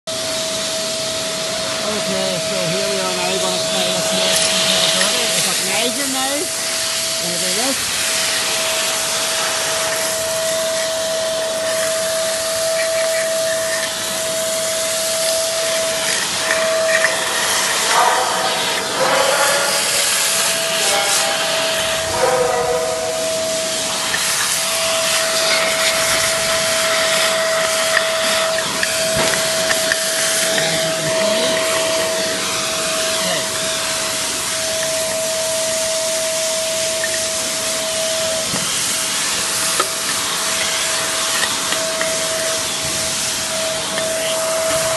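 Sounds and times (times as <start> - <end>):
vacuum whine and hiss: 0.0 - 44.9
metal chips ticking: 8.0 - 19.0, 23.8 - 42.8.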